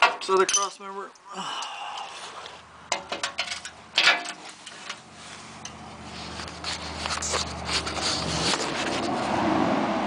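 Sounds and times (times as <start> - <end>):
metal tools clinking on bolts: 0.0 - 0.9, 2.9 - 5.0.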